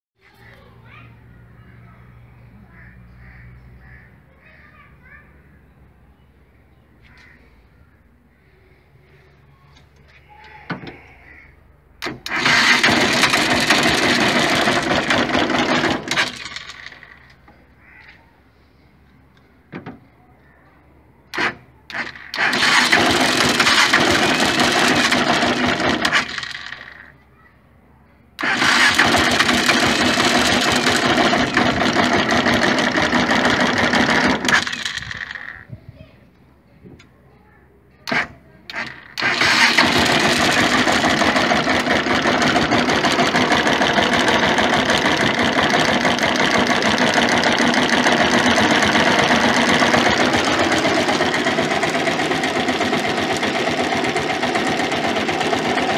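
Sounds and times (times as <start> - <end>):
engine running in bursts: 12.0 - 17.8, 21.3 - 27.3, 28.4 - 35.7, 38.1 - 55.9.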